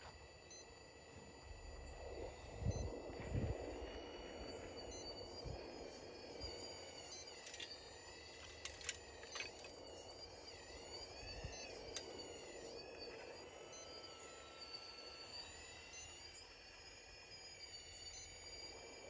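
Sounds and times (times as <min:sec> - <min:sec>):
faint whine of model motors: 0:00.0 - 0:19.0.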